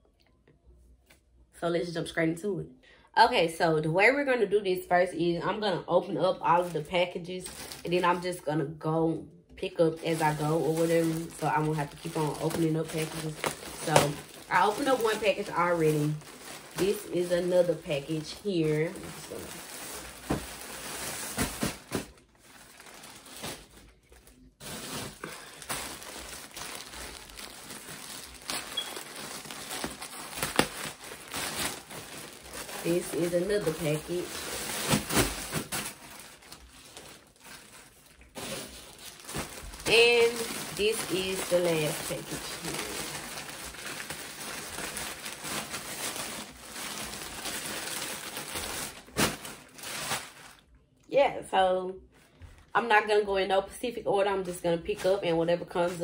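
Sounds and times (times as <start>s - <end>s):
plastic mailer bag crinkling: 6.3s - 8.5s, 9.7s - 50.7s.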